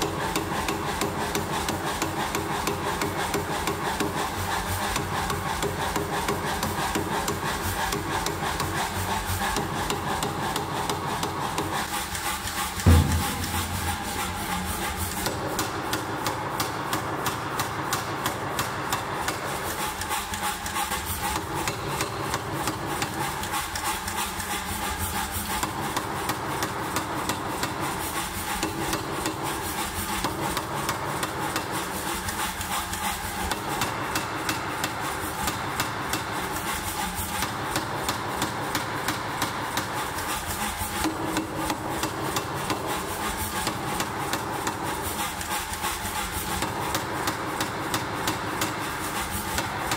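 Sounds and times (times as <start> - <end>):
power hammer striking hot steel: 12.8 - 18.4, 46.3 - 48.8.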